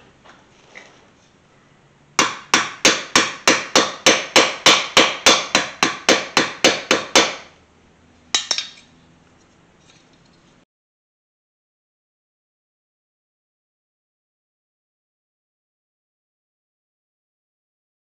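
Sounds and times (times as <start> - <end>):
small hammer tapping metal: 8.4 - 8.9.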